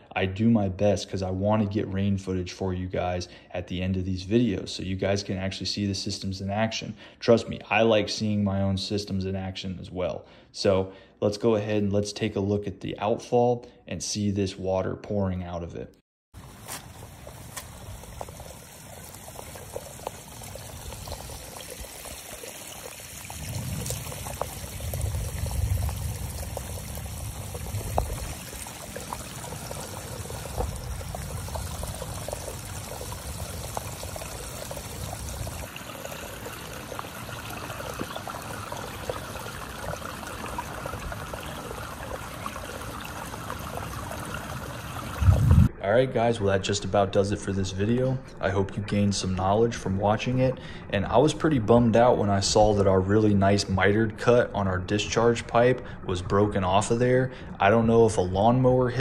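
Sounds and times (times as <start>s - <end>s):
water pouring from drainage pipe: 16.4s - 45.7s
low rumble: 45.2s - 45.9s.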